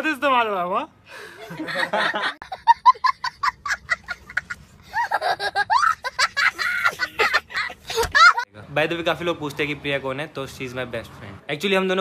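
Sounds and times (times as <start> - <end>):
small boy laughing: 1.5 - 8.5.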